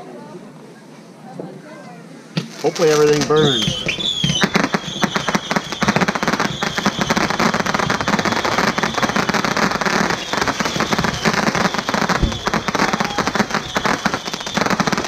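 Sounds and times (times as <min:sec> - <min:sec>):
firework whistle: 0:02.4 - 0:15.0
fireworks pops and crackle: 0:02.4 - 0:15.0.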